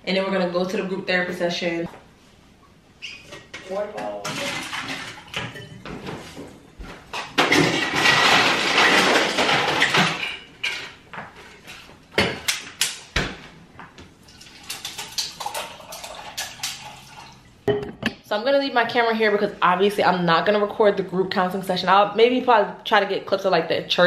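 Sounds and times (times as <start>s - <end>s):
plastic tumbler and bottles clinking: 3.7s - 5.8s, 7.2s - 11.0s
water pouring into a cup: 14.3s - 17.5s.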